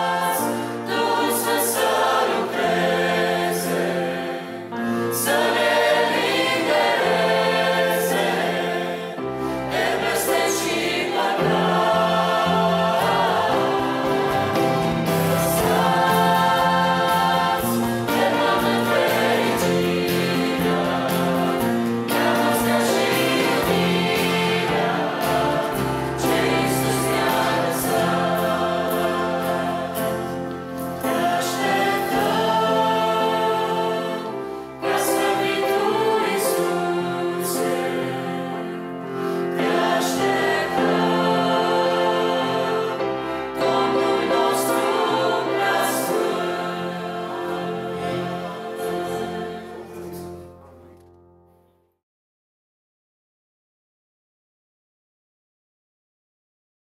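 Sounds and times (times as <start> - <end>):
choir singing a hymn: 0.0 - 51.2
piano: 0.0 - 52.0
drum kit: 11.6 - 32.3
guitars: 12.4 - 31.7.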